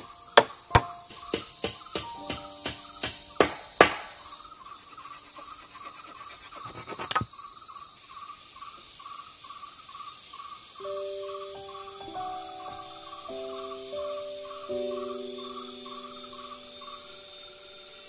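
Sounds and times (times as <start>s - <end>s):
forest insects chorus: 0.0s - 18.0s
repeating insect chirp: 0.0s - 18.0s.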